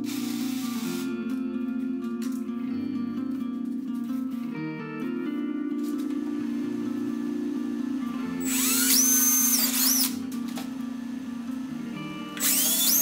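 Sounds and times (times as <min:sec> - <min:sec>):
cordless drill boring through plastic pipe: 0:00.0 - 0:01.1, 0:08.4 - 0:10.2, 0:12.3 - 0:13.0
background music: 0:00.0 - 0:13.0.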